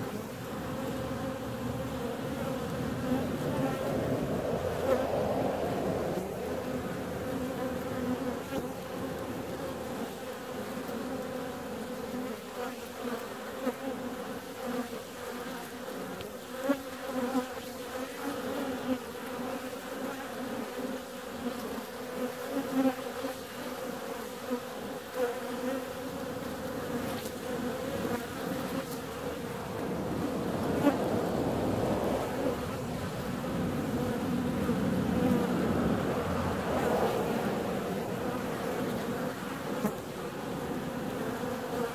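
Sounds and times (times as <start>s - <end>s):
honeybees buzzing: 0.0s - 41.9s.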